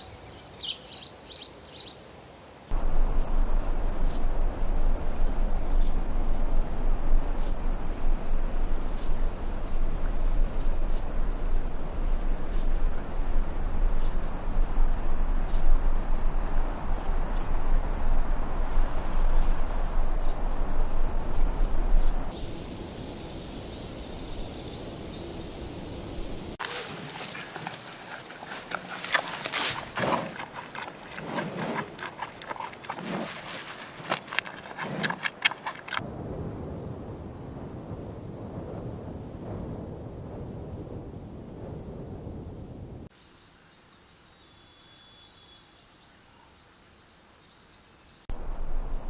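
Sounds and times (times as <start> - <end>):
low rumble: 2.7 - 26.6, 36.0 - 43.1
high insect trill: 2.7 - 36.0, 48.3 - 49.0
baboon eating leafy twigs: 26.6 - 36.0.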